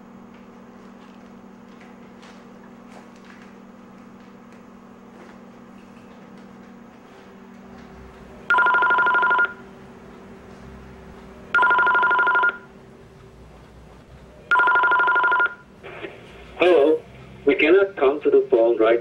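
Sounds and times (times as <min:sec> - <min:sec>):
telephone ringing: 0:08.5 - 0:09.6, 0:11.5 - 0:12.7, 0:14.5 - 0:15.7.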